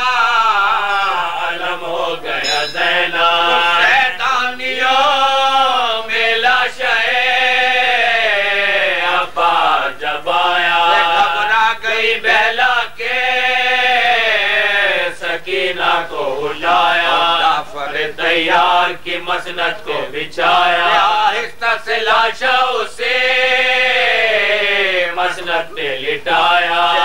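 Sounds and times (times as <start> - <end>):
men chanting: 0.0 - 27.0.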